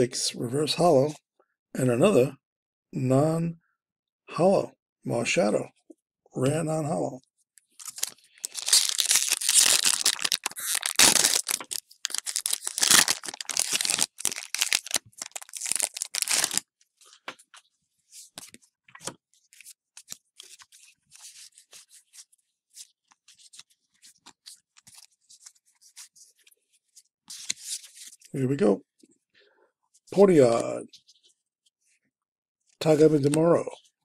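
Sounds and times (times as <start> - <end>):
cards rustling: 7.8 - 16.6
foil wrapper ripping and crinkling: 7.8 - 16.6.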